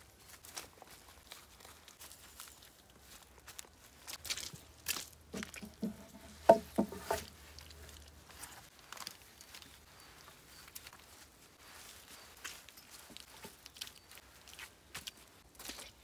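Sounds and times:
rustling of turf and dry leaves: 0:00.0 - 0:16.0
hollow wooden knocks: 0:05.3 - 0:07.4.

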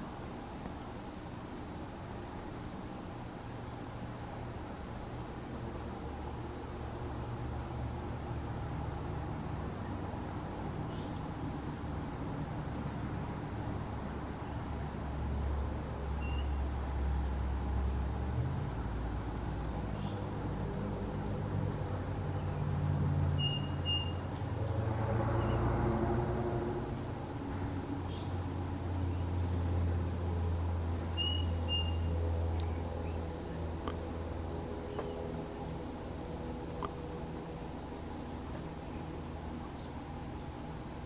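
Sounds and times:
distant motor hum: 0:00.0 - 0:41.0
insect trill: 0:00.0 - 0:41.0
bird chirps: 0:14.4 - 0:16.6, 0:22.4 - 0:24.3, 0:29.1 - 0:33.2.

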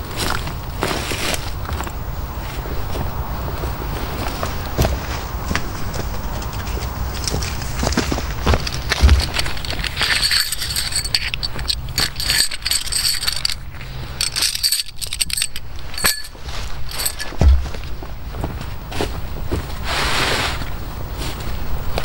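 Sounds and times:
rustling of camping gear: 0:00.0 - 0:22.0
heavy thumps: 0:07.7 - 0:13.6, 0:14.7 - 0:18.6.

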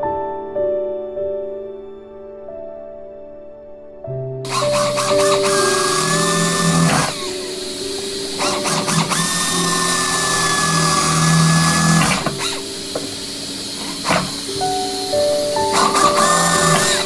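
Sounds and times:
pneumatic drill whining: 0:04.5 - 0:17.0.

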